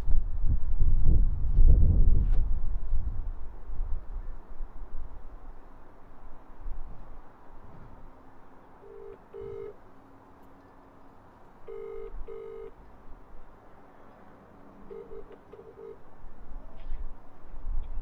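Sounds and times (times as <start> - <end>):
telephone ringing tone: 8.8 - 9.8, 11.7 - 12.8, 14.9 - 16.0.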